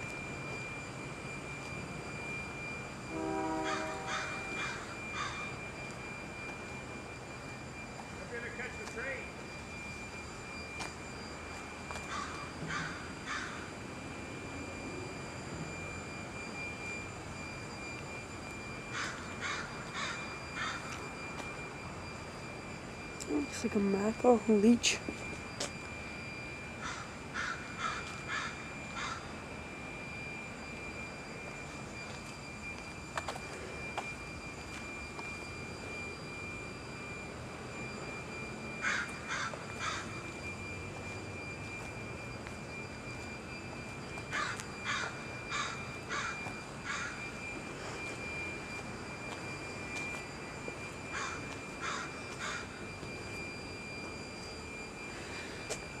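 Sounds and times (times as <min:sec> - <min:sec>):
steady background hum: 0:00.0 - 0:56.0
thin high tone: 0:00.0 - 0:56.0
crow cawing: 0:03.6 - 0:05.5, 0:12.1 - 0:13.6, 0:19.0 - 0:20.8, 0:26.8 - 0:29.3, 0:38.8 - 0:40.1, 0:44.4 - 0:47.2, 0:51.2 - 0:52.7.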